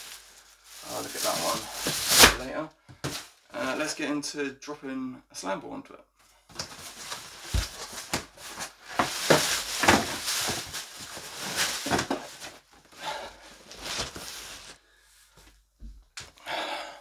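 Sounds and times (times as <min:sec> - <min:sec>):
cardboard box rustling and scraping: 0:06.7 - 0:12.6.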